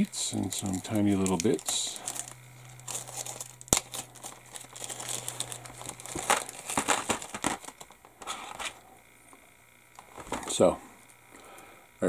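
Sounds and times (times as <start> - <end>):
plastic bag crinkling: 0.3 - 8.8.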